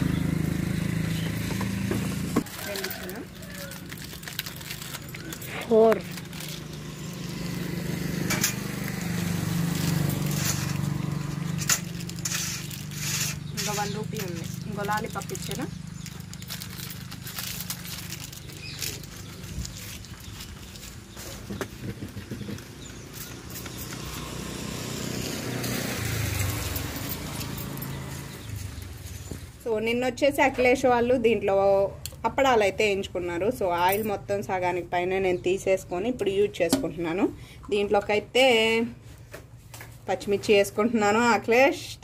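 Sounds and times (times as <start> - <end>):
small engine running: 0.0 - 29.4
motor vehicle passing: 0.0 - 31.6.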